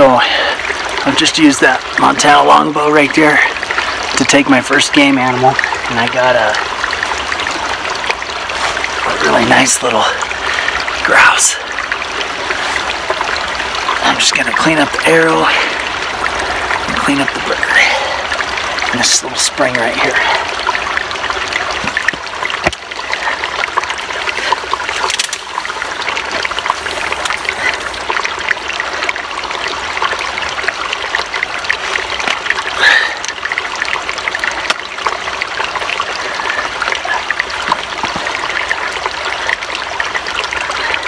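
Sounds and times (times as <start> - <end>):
spring water trickling: 0.0 - 41.0
water splash: 24.1 - 28.5.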